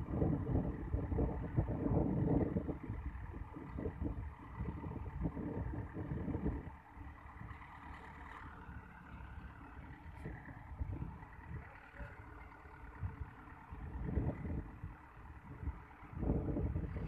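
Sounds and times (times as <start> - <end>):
wind buffeting microphone: 0.0 - 7.6, 8.5 - 12.2, 12.8 - 17.0
diesel engine running: 0.0 - 17.0.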